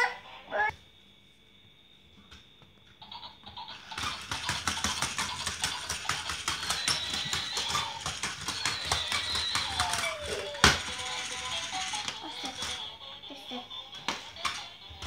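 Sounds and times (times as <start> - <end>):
toy horse clicking on wooden floor: 3.4 - 12.9, 13.9 - 15.0.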